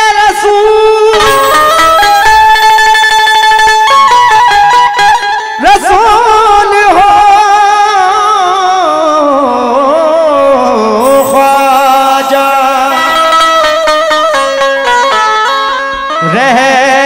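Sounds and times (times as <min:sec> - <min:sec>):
man singing with vibrato: 0:00.0 - 0:02.2, 0:05.6 - 0:14.9, 0:16.1 - 0:17.0
harmonium notes: 0:01.0 - 0:05.6, 0:11.0 - 0:16.8.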